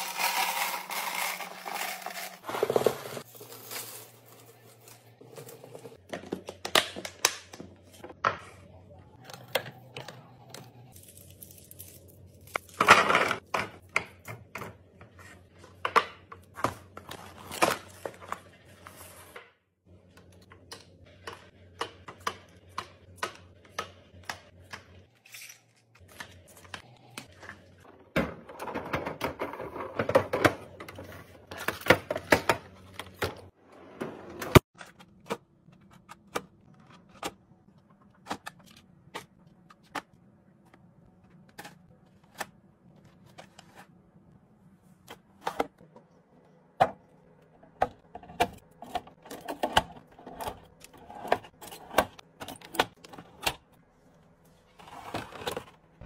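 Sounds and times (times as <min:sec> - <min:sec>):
items clicking into plastic bins: 0:26.0 - 0:33.5.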